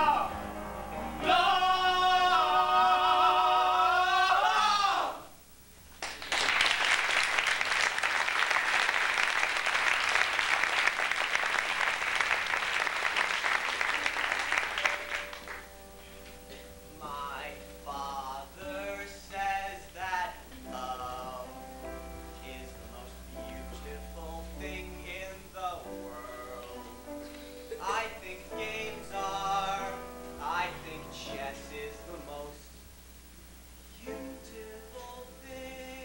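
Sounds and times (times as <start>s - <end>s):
audience applause: 6.0s - 15.7s.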